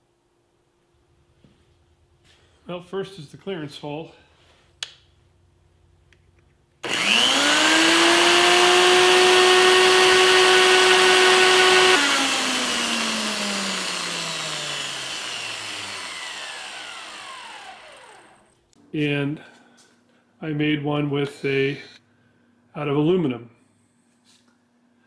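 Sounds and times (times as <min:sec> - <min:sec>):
drill motor whining: 0:06.8 - 0:18.5.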